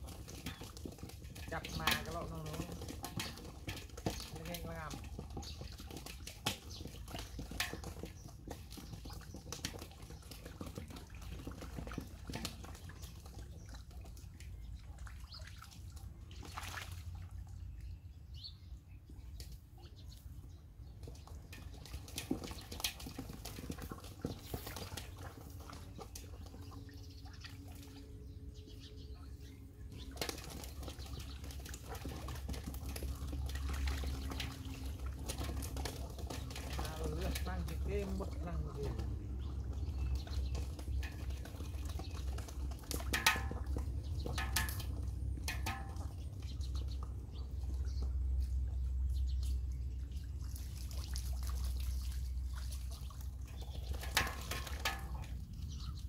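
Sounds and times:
splashes in shallow water: 0:00.0 - 0:17.6, 0:29.9 - 0:56.0
constant low rumble: 0:00.0 - 0:56.0.

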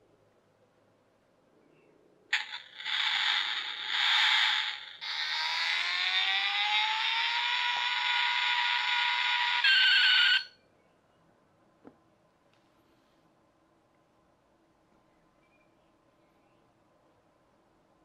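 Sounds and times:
toy car motor whine: 0:02.3 - 0:10.5
toy car hissing rush: 0:02.4 - 0:10.4.

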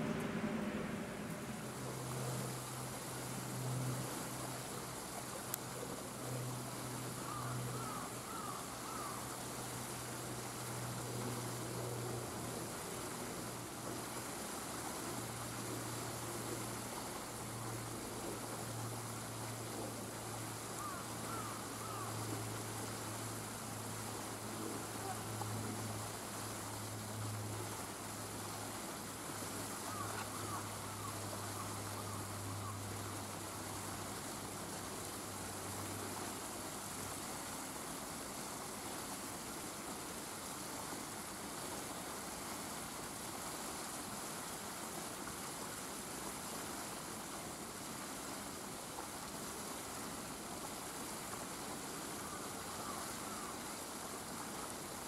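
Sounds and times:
even rushing noise: 0:00.0 - 0:03.9
low steady hum: 0:00.0 - 0:38.8.

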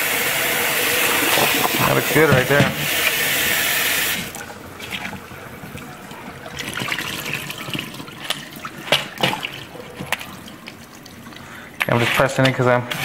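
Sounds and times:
water trickling into a sink: 0:04.2 - 0:11.6.

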